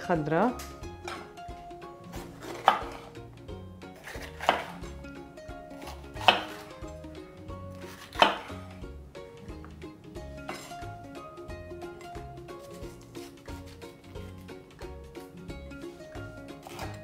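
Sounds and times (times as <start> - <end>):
knife slicing pepper: 2.1 - 3.1, 4.0 - 4.8, 5.7 - 6.9, 7.8 - 8.7, 10.4 - 10.9, 12.5 - 14.4, 16.5 - 17.0
knife knocking on cutting board: 8.2 - 8.5.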